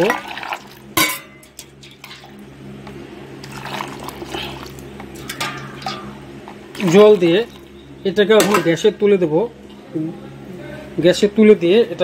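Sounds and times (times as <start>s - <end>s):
water pouring into a steel pot: 0.0s - 0.9s, 3.4s - 7.7s.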